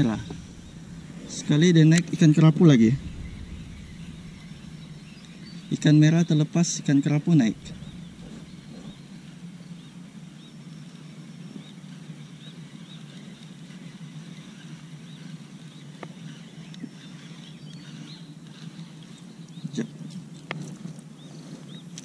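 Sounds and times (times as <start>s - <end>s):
low hum: 0.0s - 11.7s.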